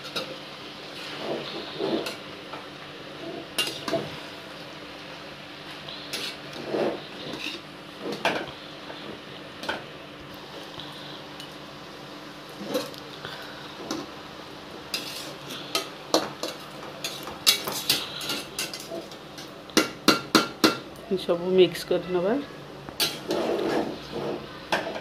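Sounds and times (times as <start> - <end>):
metal spoon scraping pan: 0.9 - 2.2, 3.2 - 4.2, 6.0 - 9.2, 14.9 - 19.5, 23.0 - 25.0.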